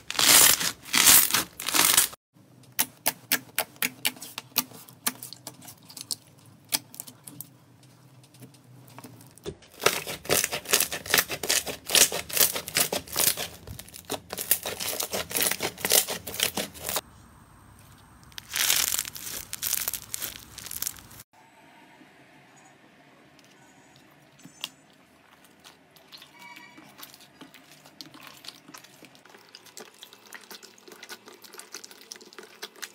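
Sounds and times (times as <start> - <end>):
slime crackling and popping: 0.0 - 2.2, 9.8 - 17.0, 18.1 - 21.2.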